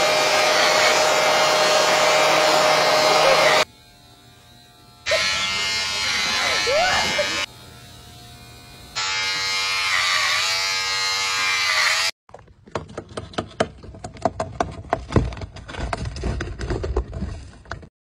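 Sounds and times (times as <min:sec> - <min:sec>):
electric hair clippers buzzing: 0:00.0 - 0:12.2.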